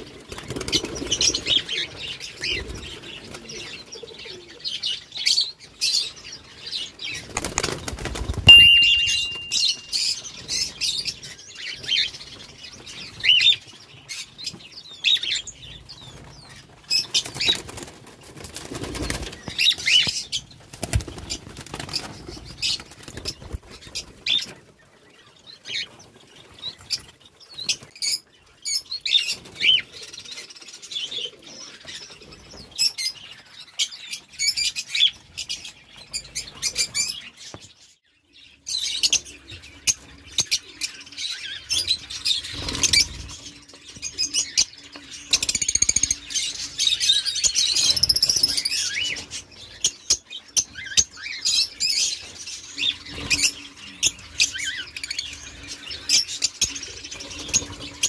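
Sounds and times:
birds flapping wings in cage: 0.0 - 3.7, 7.1 - 8.6, 15.7 - 24.5, 42.4 - 43.5.

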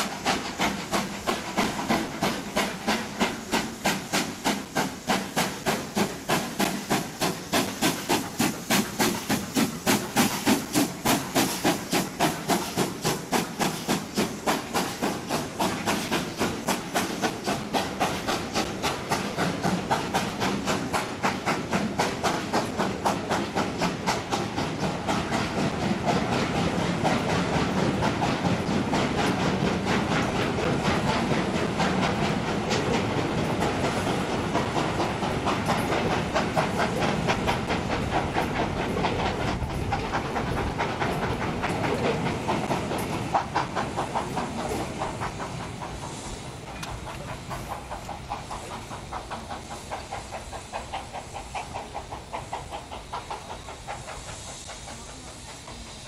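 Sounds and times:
steam locomotive exhaust beats: 0.0 - 56.0.

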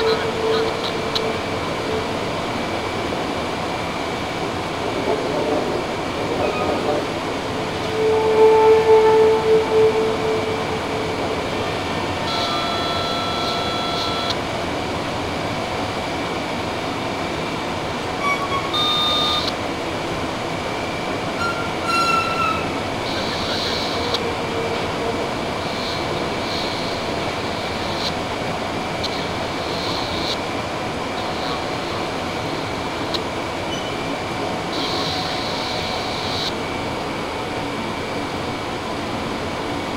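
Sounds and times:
train rolling rumble: 0.0 - 39.9
high metallic squeals: 7.8 - 11.2, 21.4 - 24.0.

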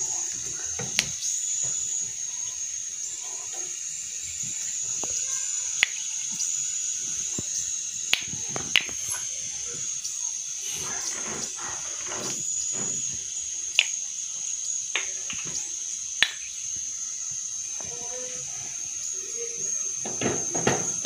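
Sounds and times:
seeds sizzling in hot oil: 0.0 - 21.0
sharp crackles: 4.4 - 14.1.

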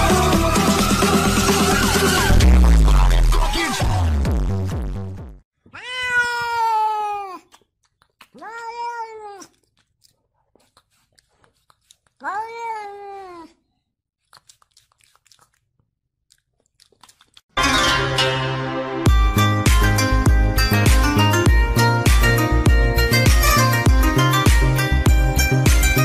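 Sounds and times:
cat meowing: 5.7 - 7.5, 8.3 - 9.6, 12.2 - 13.6.

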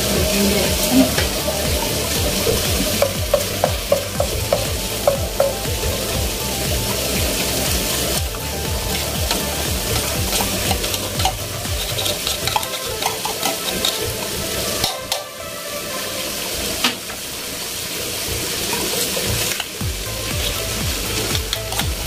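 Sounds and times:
food sizzling in a wok: 0.0 - 22.0
spoon scraping a tin: 10.3 - 15.2.

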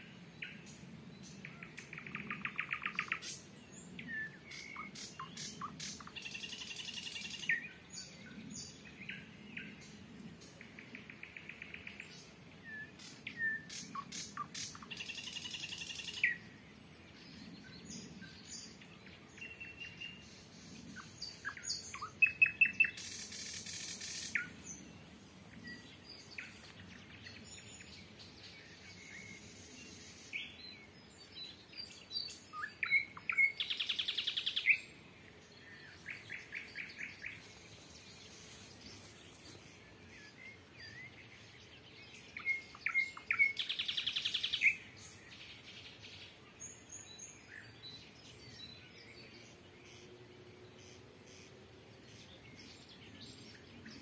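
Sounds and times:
nightingales singing: 19.4 - 26.7.

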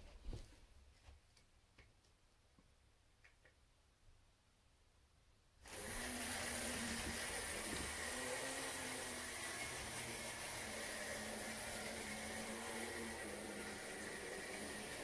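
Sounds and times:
wind-up motor whirring: 5.7 - 15.0.

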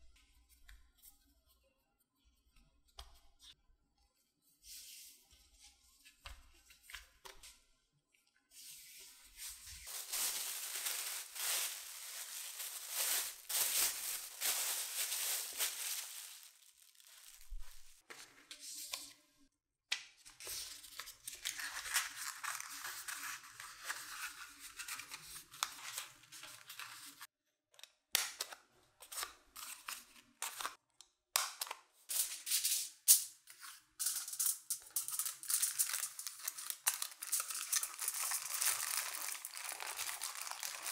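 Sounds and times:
paper rustling: 8.7 - 18.6, 35.1 - 40.9
aluminium foil crinkling: 9.8 - 18.0, 21.1 - 27.2, 34.0 - 40.9.

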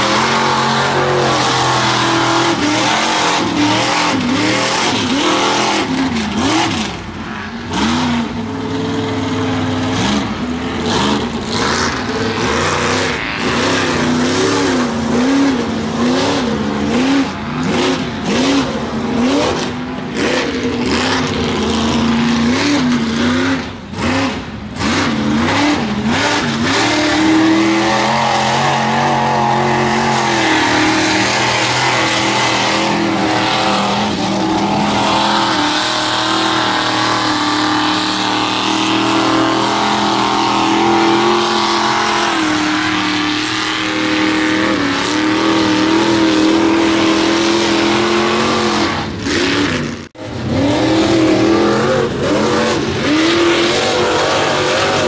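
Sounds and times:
tires churning mud: 0.0 - 55.0
truck engine revving: 0.0 - 55.0.

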